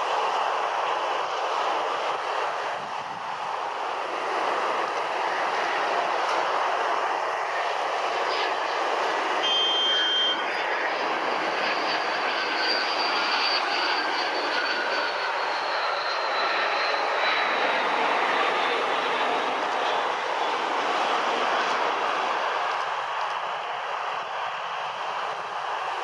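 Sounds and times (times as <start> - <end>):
jet engines roaring and whining: 0.0 - 26.0
brief high tone: 9.4 - 10.4.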